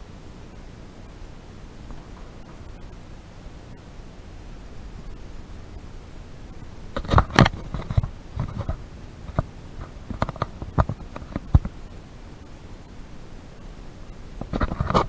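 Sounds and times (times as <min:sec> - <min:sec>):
low hiss: 0:00.0 - 0:15.0
footsteps on scaffolding walkway: 0:01.6 - 0:04.9.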